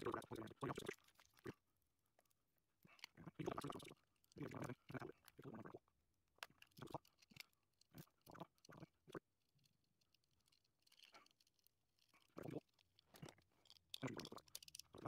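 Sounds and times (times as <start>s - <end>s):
small plastic clicks and taps: 9.6s - 15.0s.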